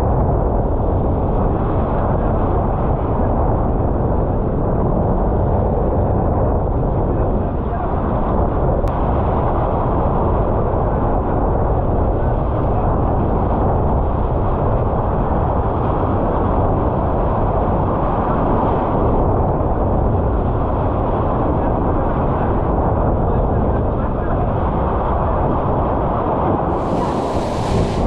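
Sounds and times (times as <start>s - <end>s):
strong wind buffeting microphone: 0.0s - 28.0s
water rushing past boat hull: 26.7s - 28.0s.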